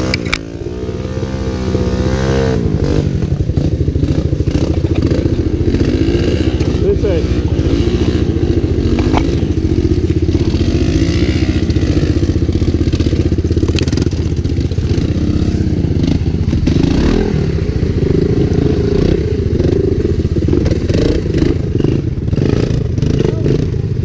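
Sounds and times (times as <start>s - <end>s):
small engines putting: 3.3s - 16.9s.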